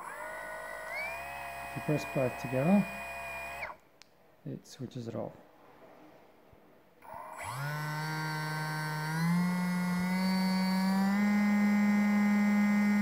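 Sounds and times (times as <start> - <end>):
electric motor whine: 0.0 - 3.8, 7.0 - 13.0.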